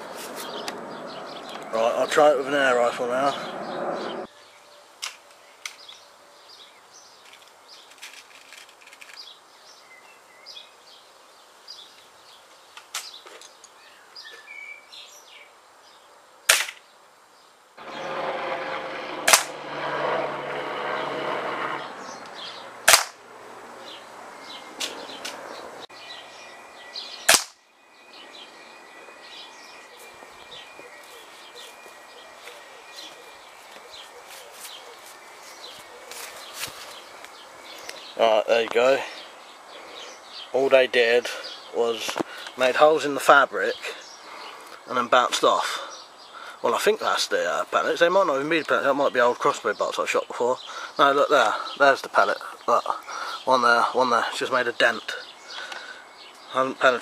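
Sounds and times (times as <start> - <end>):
air rifle shots: 16.5 - 16.8, 19.2 - 19.7, 22.8 - 23.2, 27.3 - 27.6.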